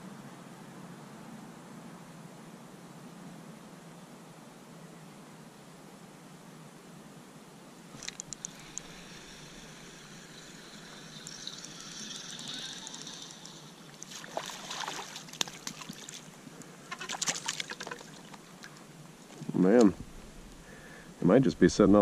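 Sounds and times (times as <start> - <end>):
water splashing: 8.0 - 18.9.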